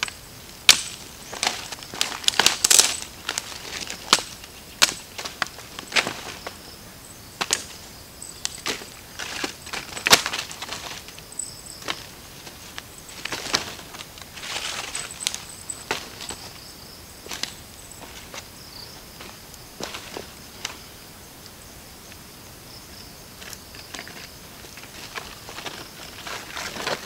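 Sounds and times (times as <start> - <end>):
dry sticks snapping: 0.0 - 6.2, 7.4 - 7.8, 8.4 - 11.2
insects buzzing: 0.0 - 27.0
dry leaves crunching: 0.7 - 6.8, 7.4 - 20.9, 23.5 - 27.0.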